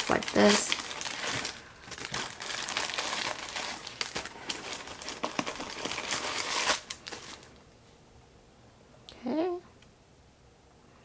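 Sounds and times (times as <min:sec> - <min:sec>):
tissue paper crinkling: 0:00.0 - 0:07.6.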